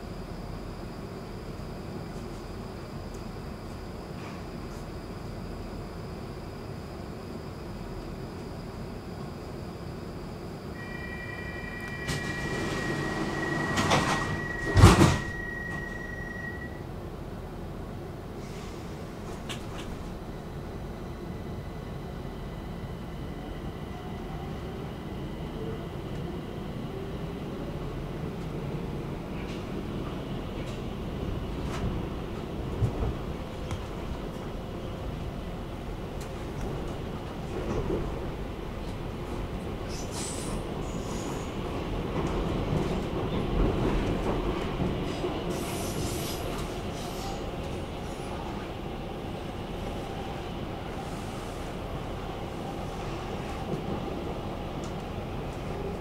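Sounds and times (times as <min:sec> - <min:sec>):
train motor whine: 0:10.7 - 0:16.8
high wheel squeal: 0:10.8 - 0:16.8
train running rumble: 0:10.8 - 0:56.0.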